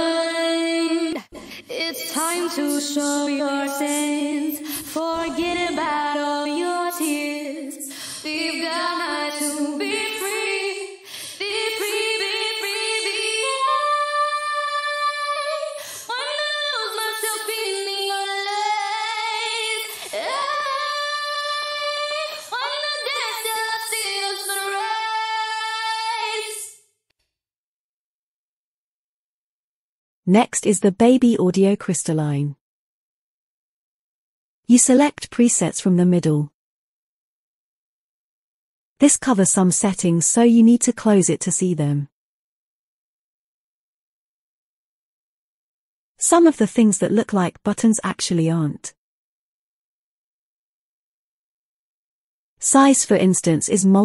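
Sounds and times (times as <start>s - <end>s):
woman singing with reverb: 0.0s - 26.7s.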